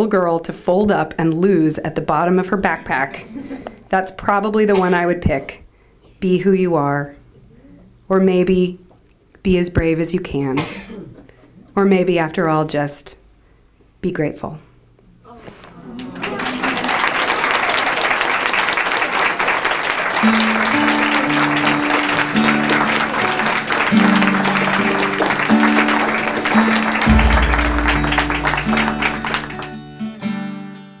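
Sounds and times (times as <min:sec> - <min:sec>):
audience applauding: 0:15.8 - 0:30.2
music of short melodic notes: 0:20.2 - 0:30.7
deep bass note: 0:27.0 - 0:29.6.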